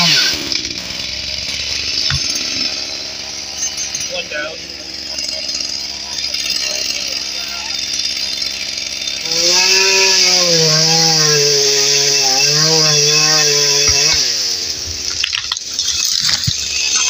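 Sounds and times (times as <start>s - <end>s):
sharp cracks and knocks: 0.0s - 2.8s, 13.7s - 17.0s
chainsaw running at high revs: 0.0s - 17.0s.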